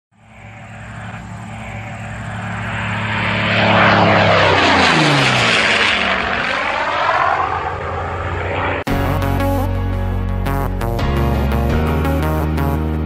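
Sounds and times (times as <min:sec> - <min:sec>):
propeller airplane flying past: 0:00.1 - 0:09.8.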